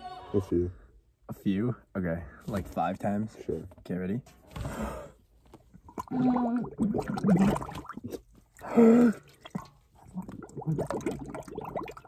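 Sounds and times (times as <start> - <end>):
person retching: 5.8 - 12.0.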